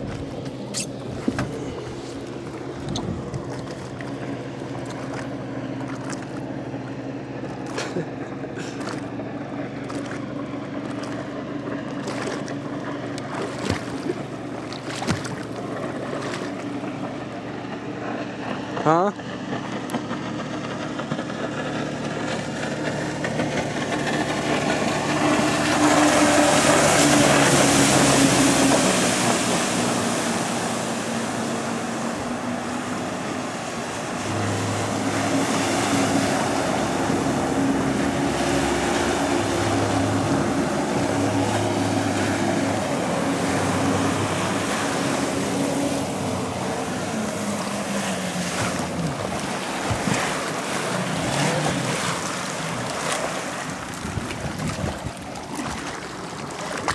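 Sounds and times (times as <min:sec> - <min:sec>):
personal watercraft engine: 0:00.0 - 0:56.9
water slapping: 0:00.0 - 0:56.9
wind on microphone: 0:02.7 - 0:03.8, 0:53.6 - 0:56.0.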